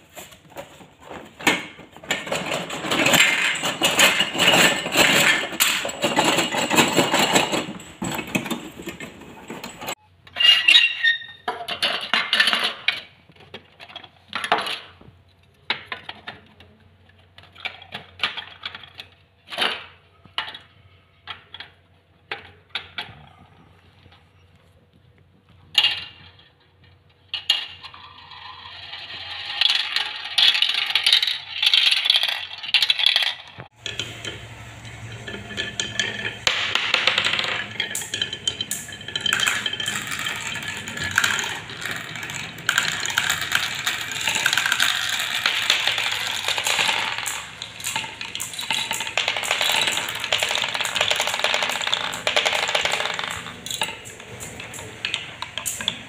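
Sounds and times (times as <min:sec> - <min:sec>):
marbles clattering on plastic track: 0:01.4 - 0:15.0, 0:27.3 - 0:56.0
marbles rattling down wooden chutes: 0:01.6 - 0:10.0, 0:27.3 - 0:56.0.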